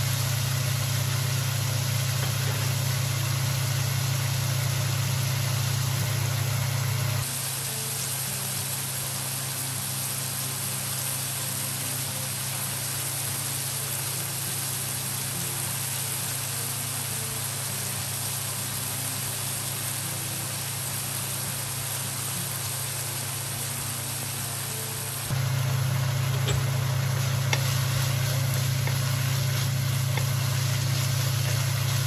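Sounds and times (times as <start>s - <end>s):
meat sizzling in a wok: 0.0s - 32.0s
constant low hum: 25.2s - 32.0s.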